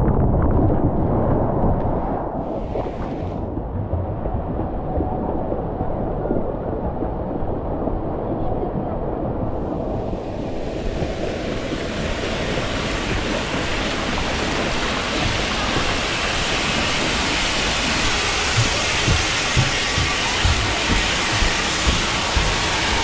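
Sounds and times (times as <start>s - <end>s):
pouring splashing water: 10.6s - 23.0s
footsteps on stairs: 13.1s - 23.0s.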